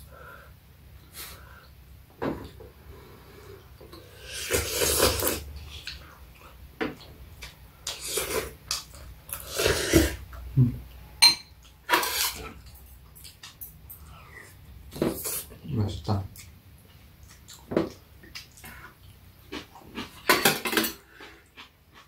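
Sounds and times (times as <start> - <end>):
cutlery clinking on ceramic bowls: 11.2 - 14.1, 20.3 - 21.0.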